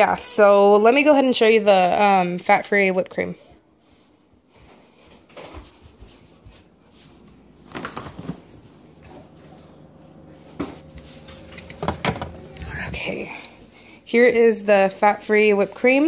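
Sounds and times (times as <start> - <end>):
phone handling noise: 10.5 - 12.7.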